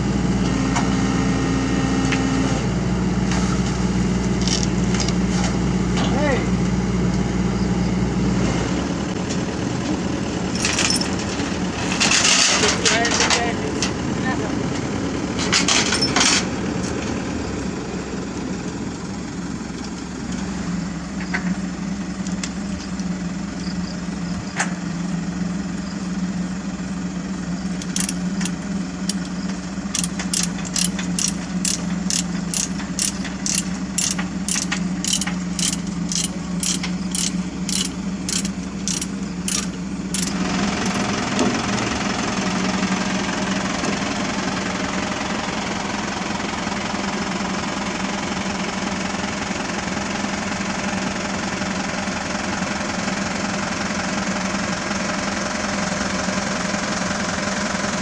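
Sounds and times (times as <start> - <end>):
diesel engine idling: 2.6 - 58.0
ratchet clicking: 27.8 - 29.3, 29.9 - 40.4.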